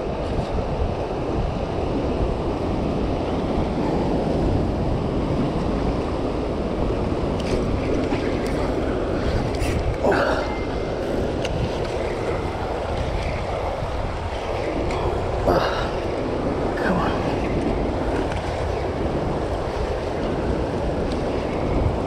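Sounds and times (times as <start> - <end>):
turbulent water rushing: 0.0 - 22.0
wind buffeting microphone: 0.0 - 22.0.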